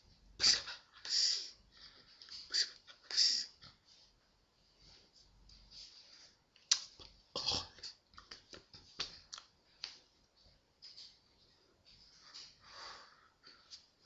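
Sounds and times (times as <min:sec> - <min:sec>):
hands slapping and clicking: 0:08.1 - 0:10.0.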